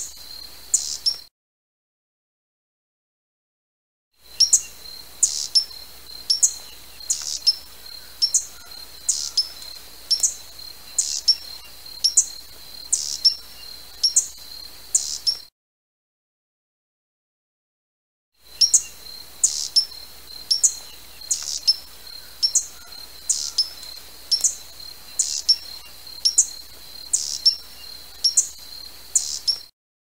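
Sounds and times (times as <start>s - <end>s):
hummingbird chip calls: 0.0s - 1.2s, 4.3s - 15.5s, 18.5s - 29.7s.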